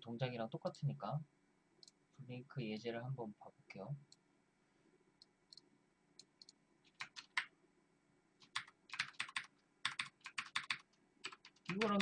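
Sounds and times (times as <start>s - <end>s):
keyboard keys clicking: 6.4s - 7.5s, 8.4s - 12.0s.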